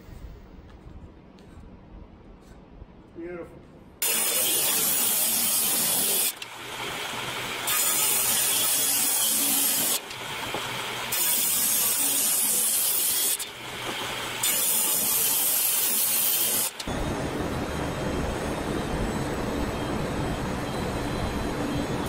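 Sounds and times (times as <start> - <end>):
table saw cutting wood: 4.0 - 17.0.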